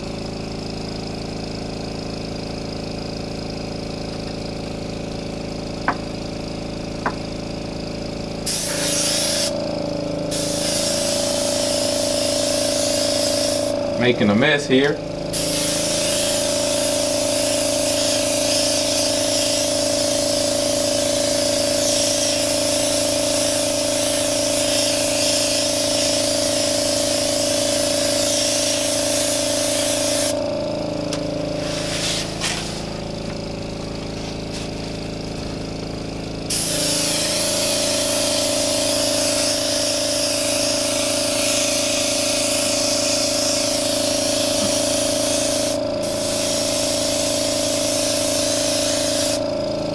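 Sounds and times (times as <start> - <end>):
small air compressor hum: 0.0 - 49.9
airbrush spraying hiss: 8.4 - 9.6, 10.3 - 13.8, 15.3 - 30.5, 31.4 - 33.2, 36.5 - 49.4.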